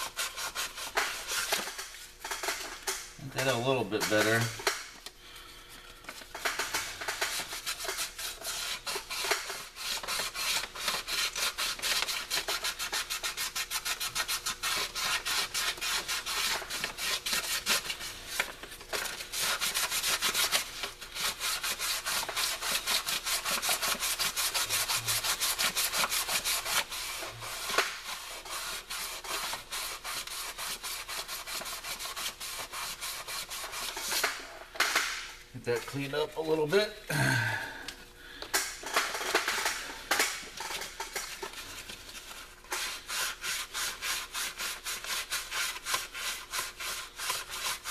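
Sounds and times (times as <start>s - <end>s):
sandpaper rubbing on metal: 0.0s - 1.9s, 3.3s - 4.6s, 6.4s - 34.6s, 39.0s - 47.9s.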